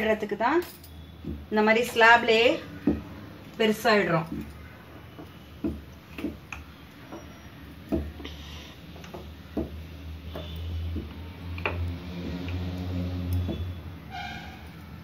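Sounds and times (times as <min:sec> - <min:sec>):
soft knocks and clicks of dough: 0:01.2 - 0:02.0, 0:02.8 - 0:03.2, 0:04.3 - 0:12.7.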